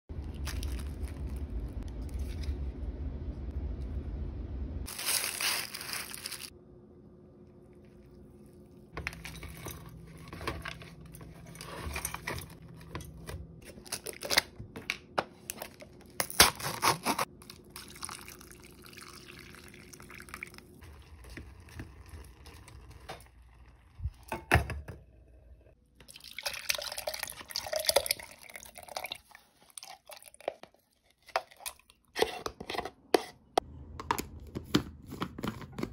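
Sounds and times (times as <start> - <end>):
paper cup handling rustles: 0.3 - 2.7, 4.9 - 6.5, 9.0 - 16.2.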